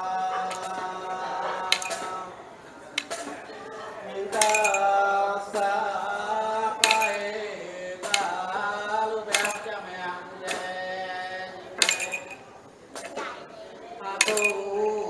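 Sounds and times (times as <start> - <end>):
sharp clink: 1.7 - 2.2, 4.4 - 5.0, 6.8 - 7.4, 9.3 - 9.8, 11.8 - 13.2, 14.2 - 14.8.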